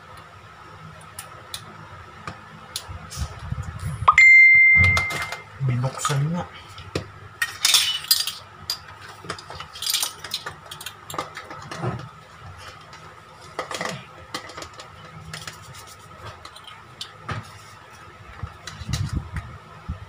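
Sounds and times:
faint high hum: 0:00.0 - 0:08.8.

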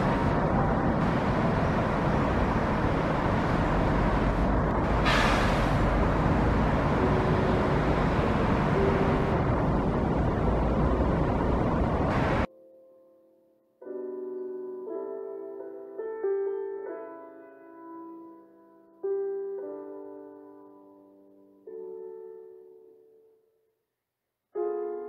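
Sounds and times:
distant road traffic: 0:00.0 - 0:12.5
short hiss: 0:05.0 - 0:05.8.

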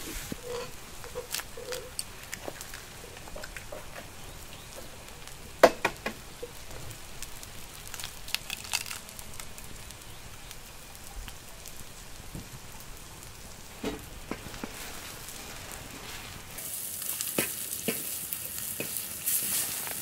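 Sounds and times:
food sizzling in a pan: 0:00.0 - 0:20.0
eggshells cracking: 0:00.4 - 0:03.7, 0:07.6 - 0:09.8.

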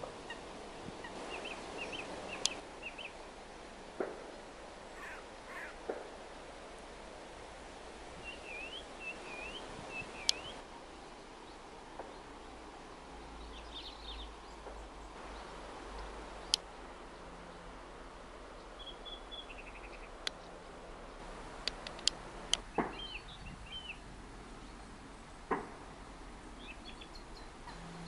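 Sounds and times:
songbirds singing: 0:00.0 - 0:06.3, 0:08.1 - 0:28.0
steady background hiss: 0:00.0 - 0:28.0
sharp clicks: 0:21.6 - 0:22.6.

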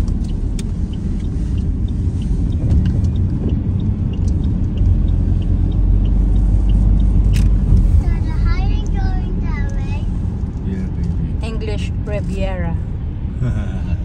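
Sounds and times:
faint light ticks: 0:00.0 - 0:07.6, 0:08.8 - 0:09.0
car road noise rumble: 0:00.0 - 0:14.0.

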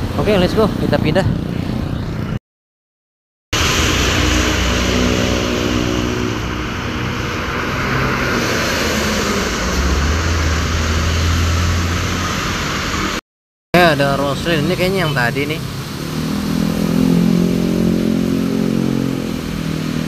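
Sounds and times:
bus engine driving past: 0:03.6 - 0:13.2
heavy rain: 0:03.6 - 0:13.2, 0:13.8 - 0:20.0
tyres hissing on wet road: 0:03.6 - 0:13.2, 0:13.8 - 0:20.0.

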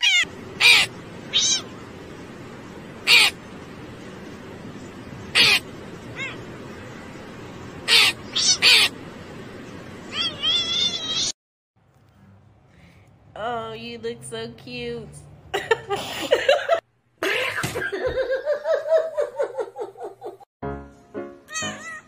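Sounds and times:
harsh animal calls: 0:00.0 - 0:01.8, 0:03.0 - 0:03.4, 0:05.3 - 0:06.5, 0:07.8 - 0:09.0
steady background hiss: 0:00.0 - 0:11.3.

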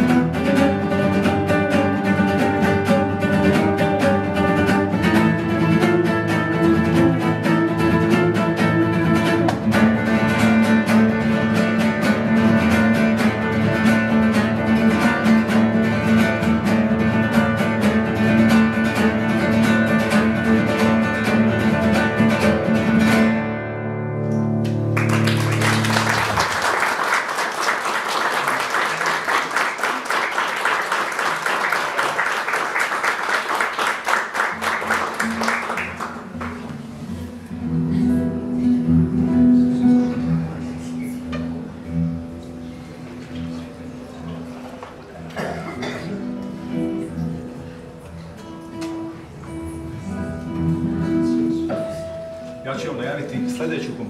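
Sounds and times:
acoustic guitars playing: 0:00.0 - 0:54.0
audience applauding: 0:24.6 - 0:36.8.

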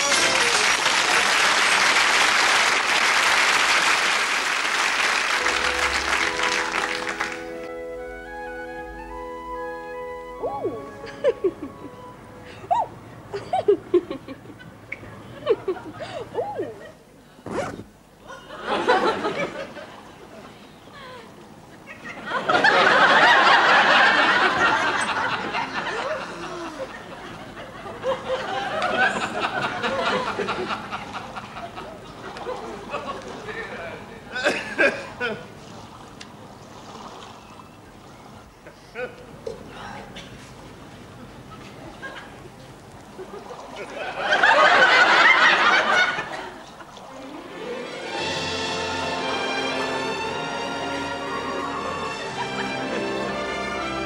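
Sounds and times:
audience applauding: 0:00.0 - 0:07.7
gentle music: 0:05.4 - 0:14.5, 0:46.9 - 0:54.0
audience laughing: 0:11.0 - 0:12.0, 0:13.3 - 0:17.1, 0:18.2 - 0:35.5, 0:41.5 - 0:48.5, 0:51.2 - 0:53.8.

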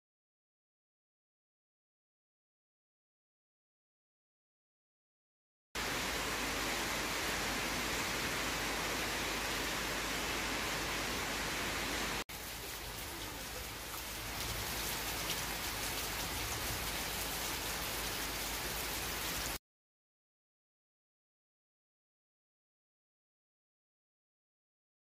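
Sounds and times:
rain on tiles: 0:05.8 - 0:19.6.

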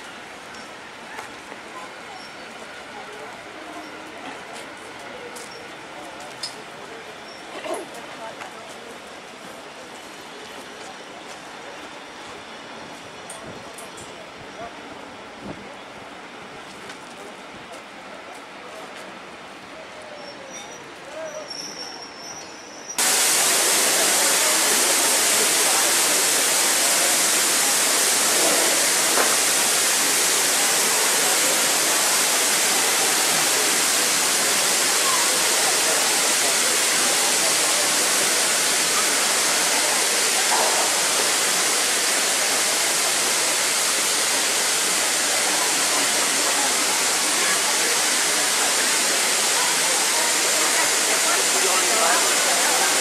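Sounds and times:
steam locomotive blowing off steam: 0:21.7 - 0:53.0.

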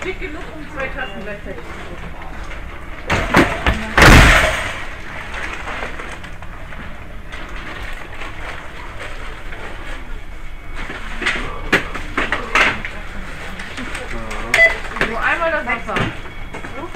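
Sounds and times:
steady background din: 0:00.0 - 0:16.9
loud thump with rustle: 0:03.1 - 0:04.9.

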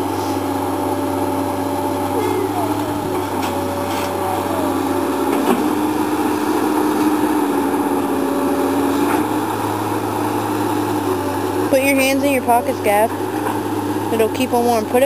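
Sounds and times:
excavator diesel engine droning: 0:00.0 - 0:15.0
hydraulic whine: 0:00.0 - 0:15.0.

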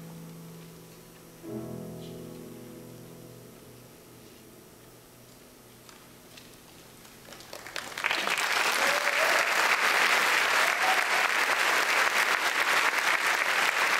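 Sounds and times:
audience applause: 0:07.0 - 0:13.9
audience whoops: 0:07.9 - 0:13.9.

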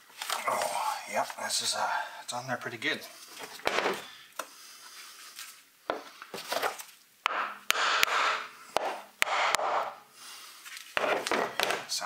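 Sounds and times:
hammer knocking on wood block: 0:07.2 - 0:10.0, 0:11.0 - 0:11.8.

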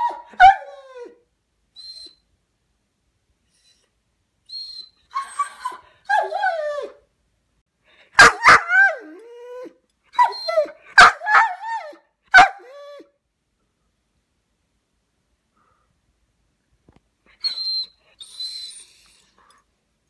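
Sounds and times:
dog whining: 0:00.0 - 0:01.2, 0:01.8 - 0:02.2, 0:03.5 - 0:03.9, 0:04.5 - 0:07.0, 0:08.2 - 0:13.1, 0:17.3 - 0:19.6
dog barking sharply: 0:08.2 - 0:08.9, 0:12.3 - 0:12.6.

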